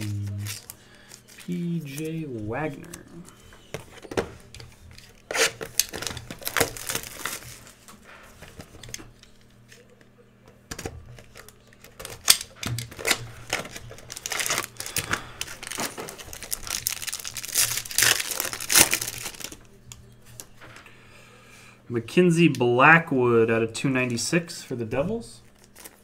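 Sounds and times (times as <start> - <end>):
wrapper crinkling and tearing: 0.0 - 3.2, 4.9 - 7.8, 11.2 - 19.6, 25.4 - 26.0
paper and card rustling: 0.0 - 9.9, 10.8 - 19.6, 25.4 - 26.0.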